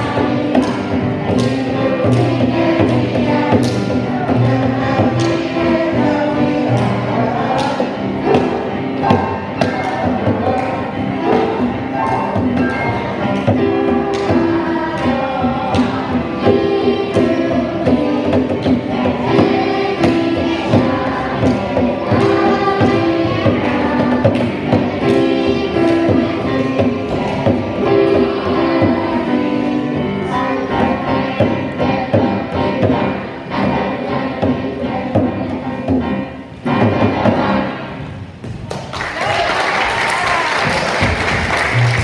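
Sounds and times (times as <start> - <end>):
children singing: 0.0 - 38.0
digital piano: 0.0 - 38.4.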